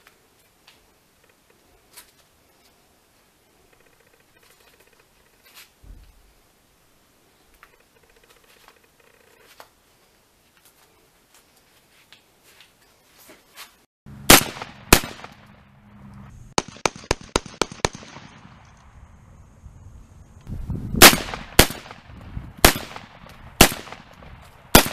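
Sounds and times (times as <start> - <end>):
shotgun shots: 14.2 - 15.6, 16.6 - 18.8, 21.0 - 24.9.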